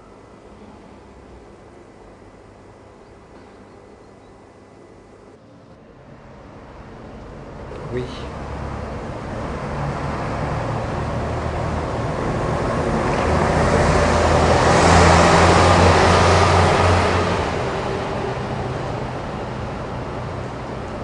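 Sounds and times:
passing vehicle engine hum: 0:05.4 - 0:21.0.

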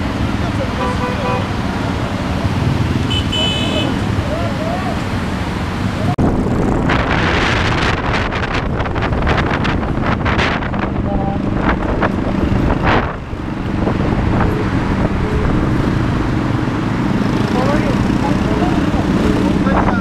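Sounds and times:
wind buffeting microphone: 0:05.9 - 0:20.0.

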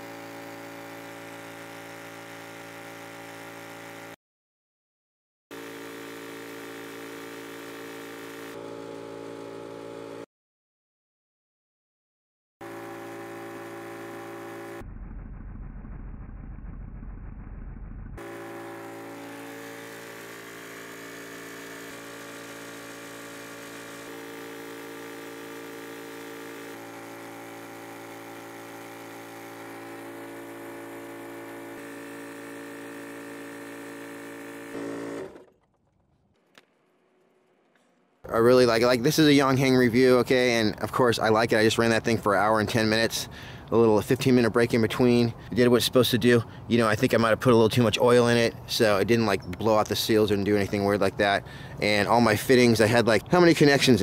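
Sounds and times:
air compressor humming: 0:00.0 - 0:04.2, 0:05.5 - 0:10.3, 0:12.6 - 0:16.5, 0:17.3 - 0:35.7, 0:50.7 - 0:54.0.

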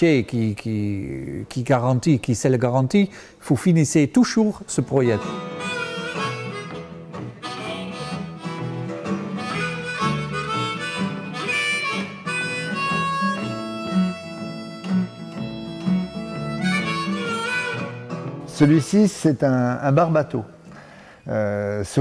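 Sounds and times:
harmonica drawn-out notes: 0:05.0 - 0:18.8
acoustic guitar strumming: 0:05.0 - 0:18.9.

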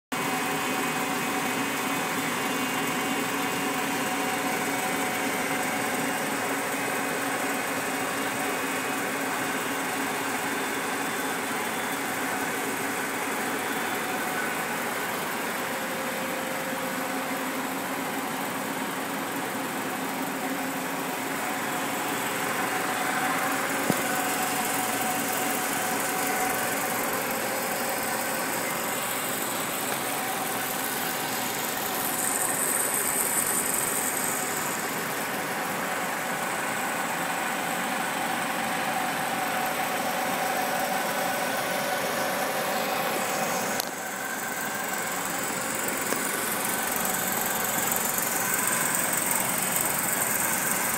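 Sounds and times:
film projector humming and whirring: 0:16.5 - 0:50.9.

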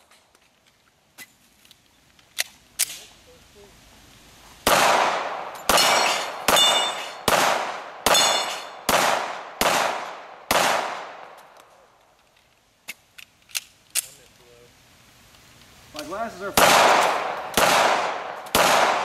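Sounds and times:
pistol shots echoing: 0:04.7 - 0:11.3, 0:16.6 - 0:19.0
bullets ringing on steel targets: 0:05.5 - 0:07.4, 0:08.1 - 0:08.8.

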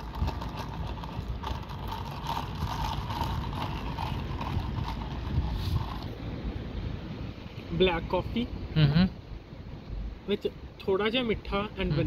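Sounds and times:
ice rattling in plastic cup: 0:00.0 - 0:06.1
wind rumble on microphone: 0:00.0 - 0:12.0.

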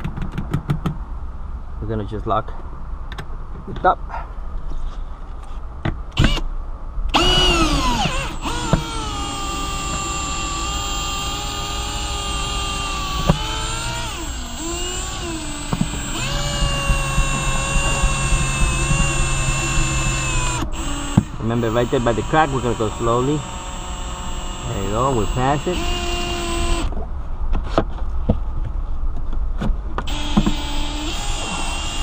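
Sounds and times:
cordless drill whining: 0:06.2 - 0:06.4, 0:07.1 - 0:26.9, 0:30.1 - 0:32.0.

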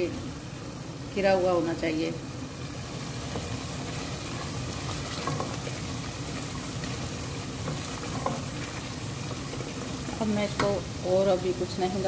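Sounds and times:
masala sizzling in a pot: 0:00.0 - 0:12.0
spatula scraping a pot: 0:03.3 - 0:10.7.

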